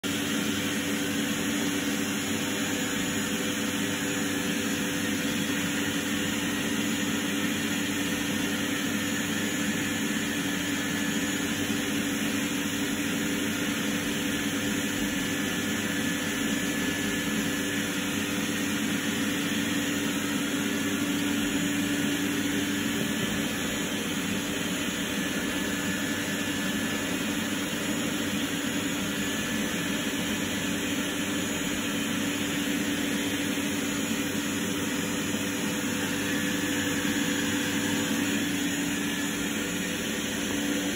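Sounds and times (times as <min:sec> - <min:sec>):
fan humming and whirring: 0:00.0 - 0:40.9.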